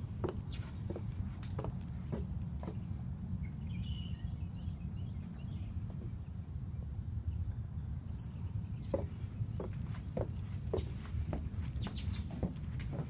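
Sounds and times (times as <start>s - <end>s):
footstep on wooden dock: 0.2s - 2.8s, 8.9s - 13.0s.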